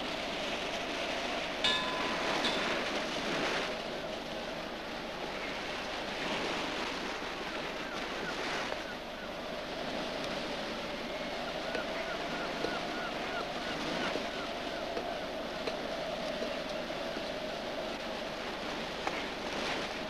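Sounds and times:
sea waves washing: 0:00.0 - 0:20.0
wind blowing: 0:00.0 - 0:20.0
ringing metallic clink: 0:01.7 - 0:03.0.

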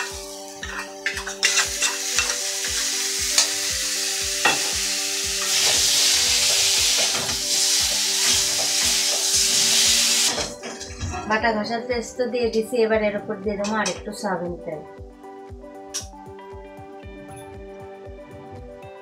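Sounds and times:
paste sizzling in hot oil: 0:00.0 - 0:10.5
background music with steady beat: 0:00.0 - 0:19.0
metal spatula scraping pan: 0:00.6 - 0:02.4.

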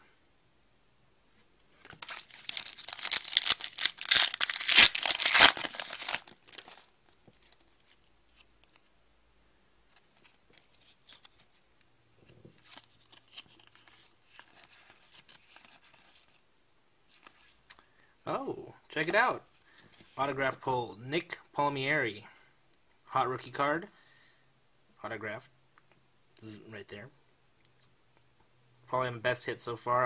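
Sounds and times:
cards rustling: 0:01.8 - 0:08.8, 0:10.0 - 0:11.6, 0:12.4 - 0:16.4
plastic wrapper tearing and crinkling: 0:01.9 - 0:08.0.

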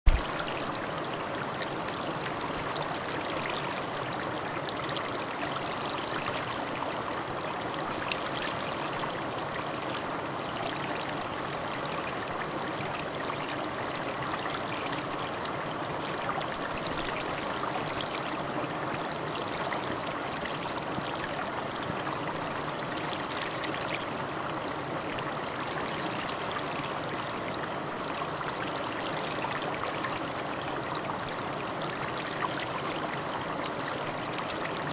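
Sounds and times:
steady rushing noise: 0:00.1 - 0:00.4.

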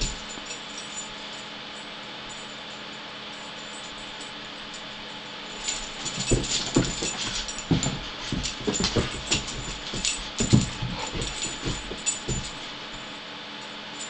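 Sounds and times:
thumps and rustles on carpet: 0:05.6 - 0:13.0.

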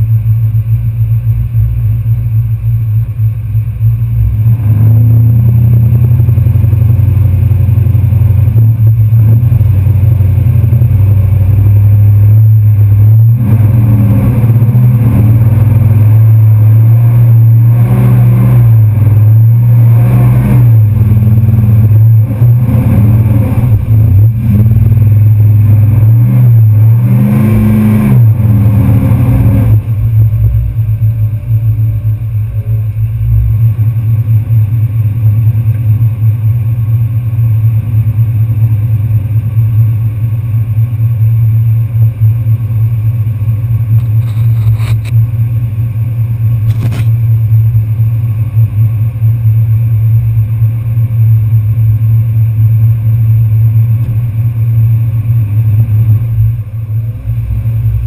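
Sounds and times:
truck engine revving: 0:03.5 - 0:36.3, 0:53.7 - 0:58.0.

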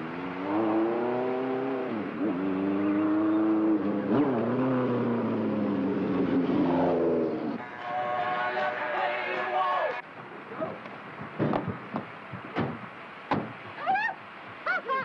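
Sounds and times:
motorcycle engine accelerating: 0:00.0 - 0:07.6.

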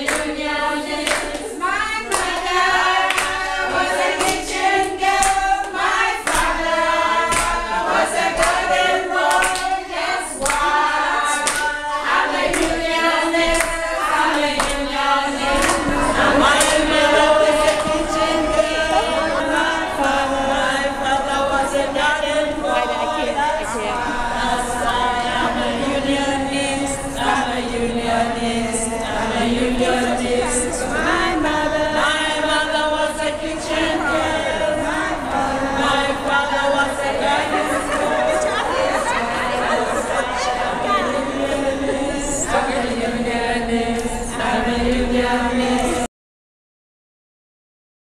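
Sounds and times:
hand clapping: 0:00.0 - 0:00.4, 0:01.0 - 0:01.5, 0:02.1 - 0:19.1
group singing in unison: 0:00.0 - 0:46.1.

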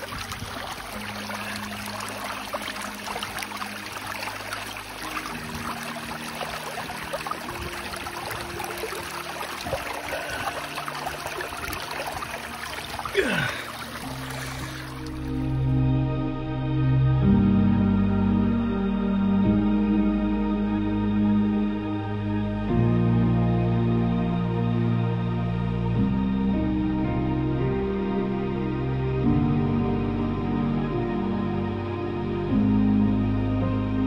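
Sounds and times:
bottle gurgling: 0:00.0 - 0:15.5
stream running over stones: 0:00.0 - 0:15.6
soft background music: 0:00.0 - 0:34.0.

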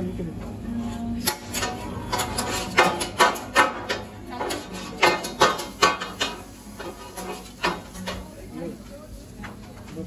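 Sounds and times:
kitchen utensils knocking and clacking: 0:01.2 - 0:08.3.

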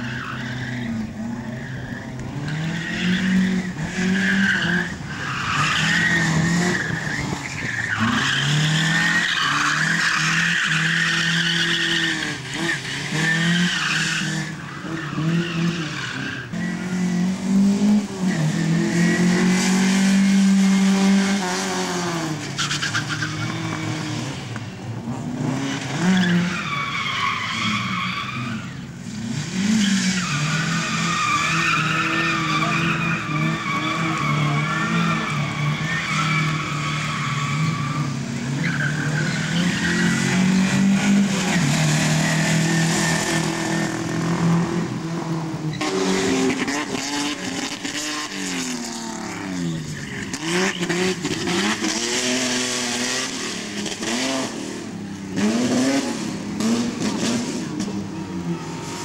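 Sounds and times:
car engine revving: 0:00.0 - 0:59.0
tyres squealing: 0:30.2 - 0:44.2.

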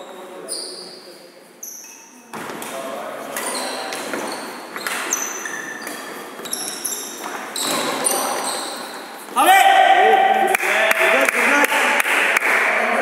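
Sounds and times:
shoes squeaking on wooden floor: 0:00.0 - 0:09.5.

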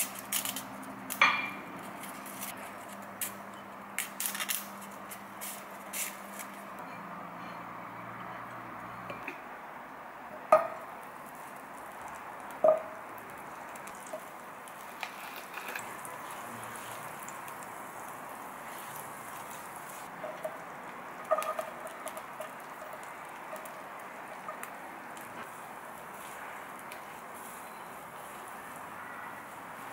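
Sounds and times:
butter sizzling in a frying pan: 0:11.2 - 0:28.8.

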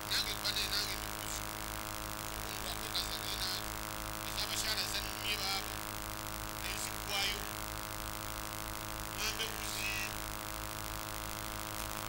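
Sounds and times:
person's voice: 0:00.0 - 0:01.5, 0:02.3 - 0:05.8, 0:06.6 - 0:07.6, 0:09.1 - 0:10.2
loudspeaker electrical hum: 0:00.0 - 0:12.0.

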